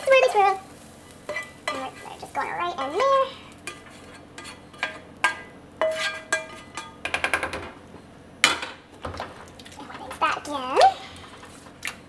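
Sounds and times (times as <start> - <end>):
utensil scraping metal pots: 1.2 - 7.1.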